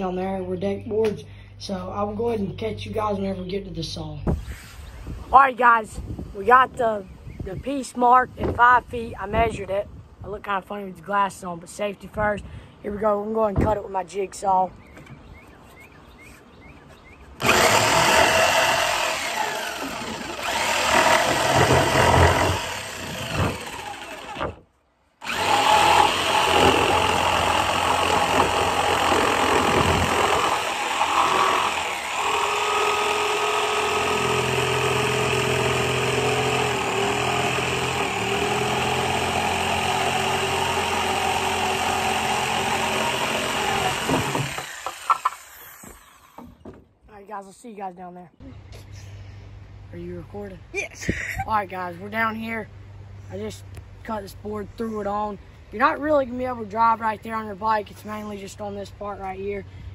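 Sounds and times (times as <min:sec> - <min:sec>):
jigsaw cutting wood: 0:17.4 - 0:24.6, 0:25.2 - 0:46.4.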